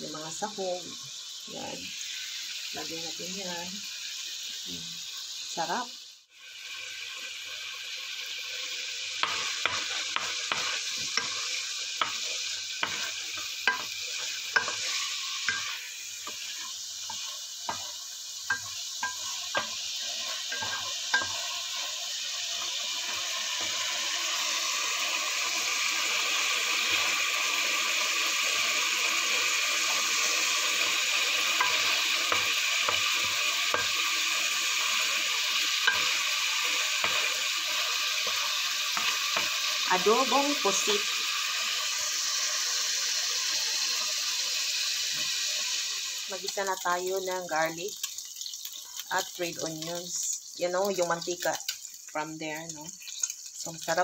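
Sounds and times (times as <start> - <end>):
squid sizzling in oil: 0.0 - 54.0
spatula clicking and scraping pan: 9.2 - 23.9, 29.9 - 34.3, 34.9 - 39.8, 47.9 - 49.3, 50.9 - 52.0, 52.9 - 54.0.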